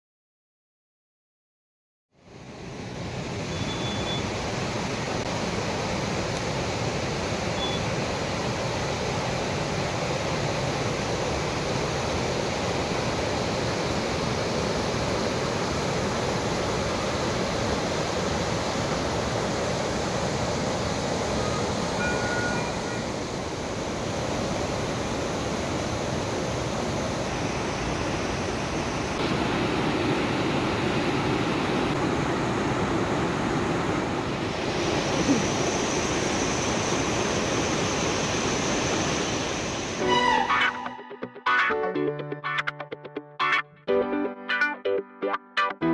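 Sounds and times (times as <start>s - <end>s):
river rapids rushing over stones: 4.3s - 40.0s.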